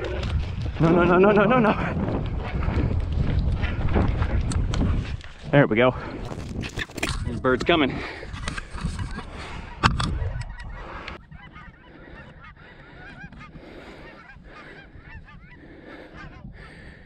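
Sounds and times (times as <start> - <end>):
heavy breathing on microphone: 2.3 - 6.8, 7.6 - 17.0
geese honking: 9.1 - 17.0.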